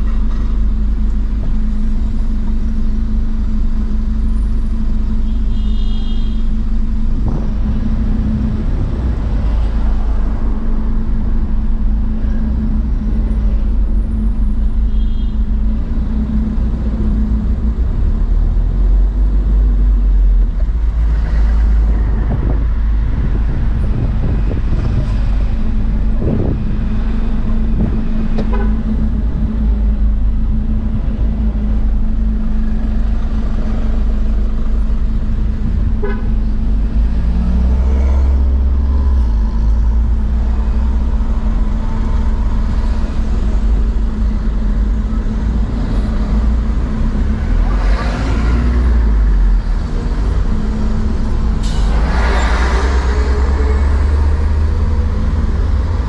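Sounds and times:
car engine and road rumble: 0.0 - 56.0
car horn toots: 5.3 - 6.5, 36.0 - 36.4.

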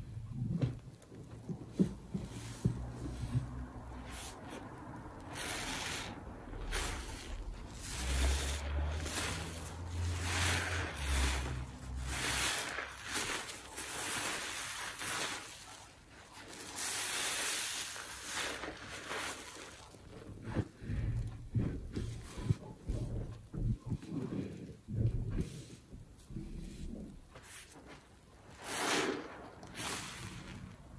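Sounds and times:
sponge squelching in suds: 1.7 - 30.9
low rumble: 20.6 - 27.3.

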